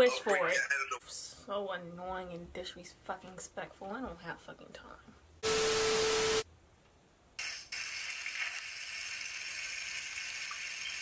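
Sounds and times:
burst of static with tone: 5.4 - 6.4.

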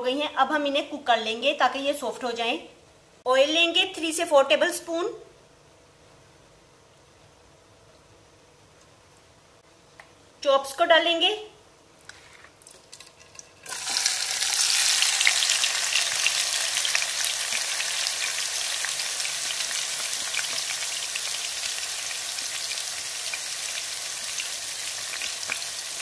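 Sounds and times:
meat sizzling in hot oil: 12.7 - 26.0.

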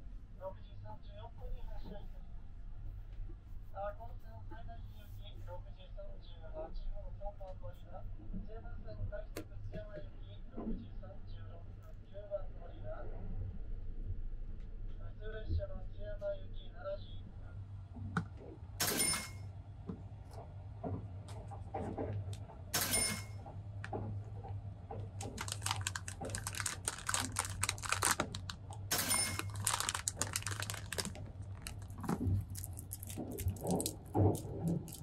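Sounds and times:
steady low hum: 0.0 - 35.0
plastic packaging crinkling: 25.2 - 35.0.

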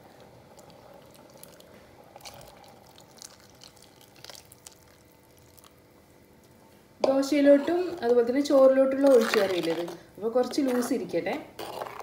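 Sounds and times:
water pouring into a pot: 0.5 - 5.6.

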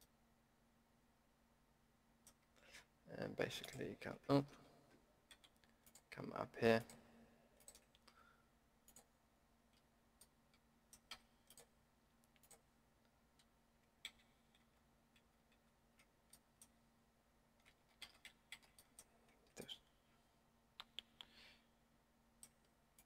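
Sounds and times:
computer keys clicking: 5.2 - 6.1, 7.6 - 8.2, 8.8 - 9.1, 10.2 - 12.7, 13.4 - 16.8, 17.6 - 19.6.

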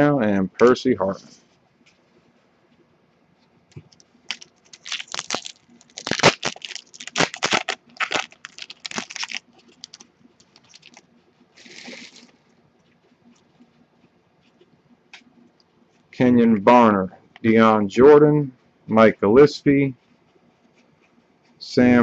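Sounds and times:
foil wrapper tearing and crinkling: 4.3 - 11.0, 11.6 - 12.3.

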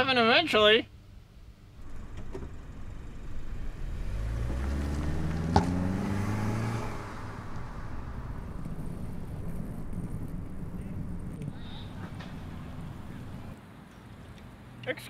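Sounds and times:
car engine passing by: 1.8 - 13.6.

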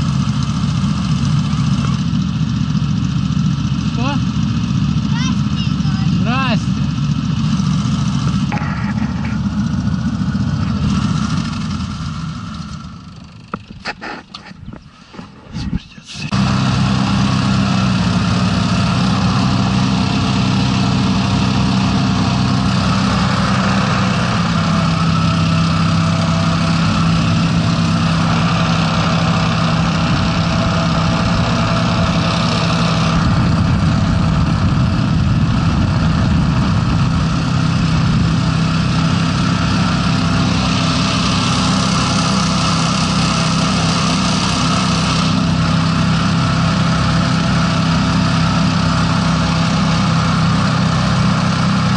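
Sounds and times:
hovercraft engines running: 0.0 - 51.9
rush of propeller fans: 16.2 - 51.9.

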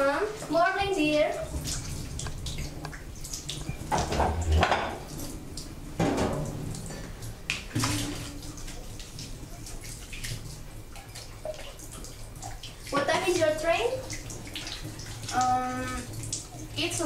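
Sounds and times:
tap running into sink: 1.5 - 5.1
chair dragged on floor: 4.1 - 5.0.

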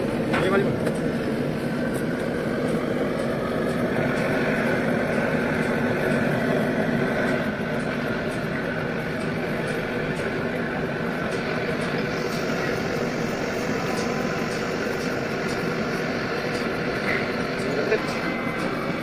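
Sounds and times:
mechanical running noise: 0.0 - 19.0.

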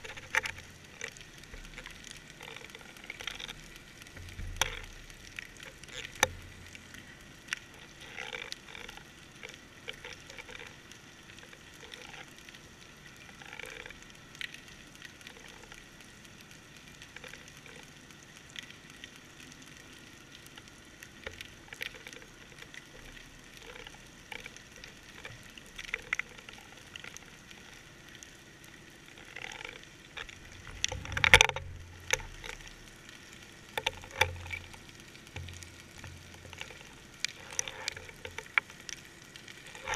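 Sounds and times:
underwater crackling clicks: 0.0 - 39.9
low bumps: 30.4 - 32.1.

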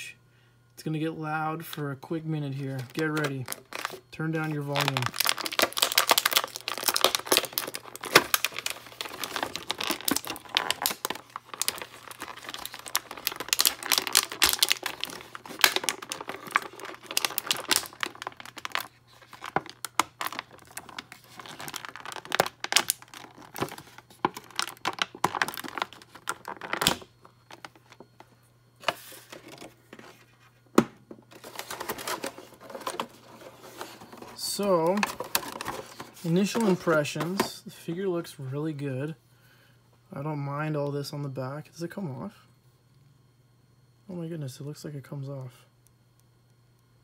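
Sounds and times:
plastic packaging crinkling: 2.5 - 28.2, 31.3 - 37.5
plastic tearing: 2.7 - 28.0.

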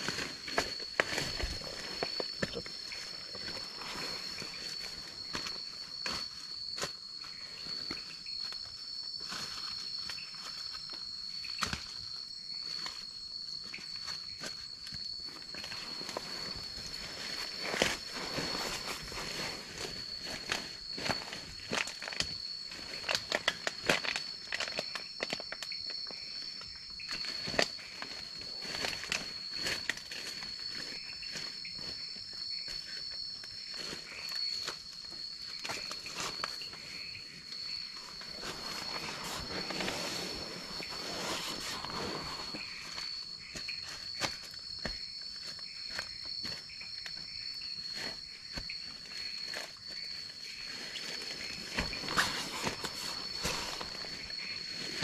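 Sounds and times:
sleeping bag rustling: 0.0 - 6.3, 15.4 - 24.9, 33.6 - 44.8, 47.8 - 55.0
higher insect tone: 0.0 - 55.0
night insects droning: 0.0 - 55.0.

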